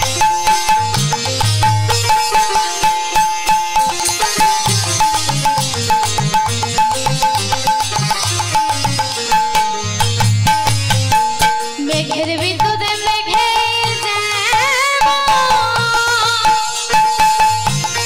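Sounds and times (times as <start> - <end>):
sharp cymbal-like strikes: 0.0 - 12.0
melody of held notes: 0.0 - 13.9.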